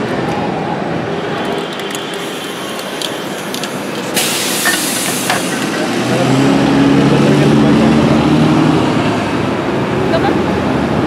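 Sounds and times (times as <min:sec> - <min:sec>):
street traffic: 0:00.0 - 0:11.0
spray paint can hissing: 0:01.8 - 0:06.1.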